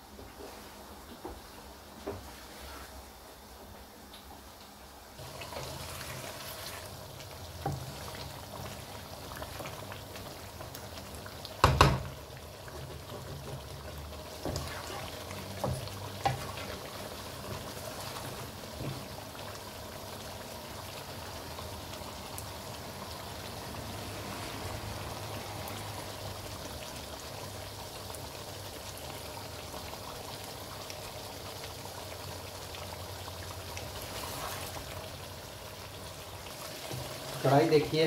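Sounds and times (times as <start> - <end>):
gravy bubbling and sizzling: 0.0 - 38.0.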